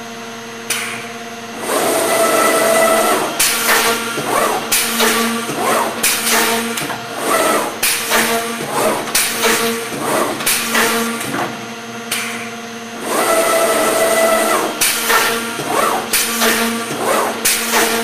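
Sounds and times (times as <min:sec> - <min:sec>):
motor whine: 0:00.0 - 0:18.0
sharp machine clack: 0:01.6 - 0:11.4.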